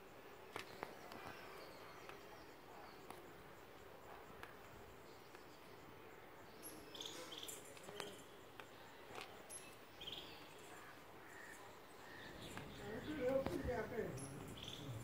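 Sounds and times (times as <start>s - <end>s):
faint outdoor ambience: 0.0s - 15.0s.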